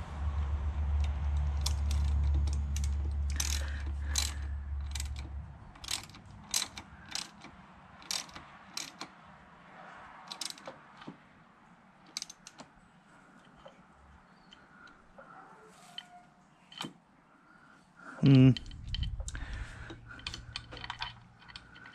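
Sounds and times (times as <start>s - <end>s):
low hum: 0.0s - 6.4s, 18.3s - 21.9s
hand ratchet clicking: 1.0s - 9.1s, 10.3s - 10.8s, 12.1s - 12.6s, 18.6s - 21.9s.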